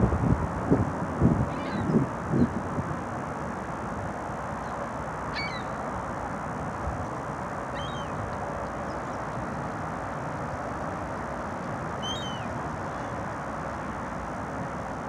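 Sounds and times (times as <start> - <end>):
high bird chirps: 5.3 - 5.8, 7.7 - 8.2, 12.0 - 12.5.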